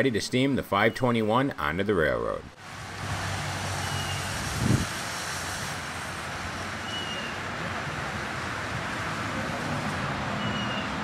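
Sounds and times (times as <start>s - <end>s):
steam hissing: 2.7s - 10.4s.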